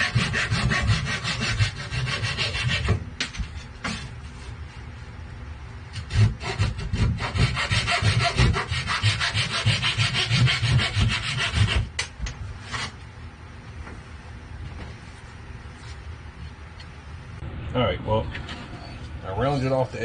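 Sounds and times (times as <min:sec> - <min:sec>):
hand rasp scraping wood: 0:00.0 - 0:03.0, 0:05.9 - 0:11.9.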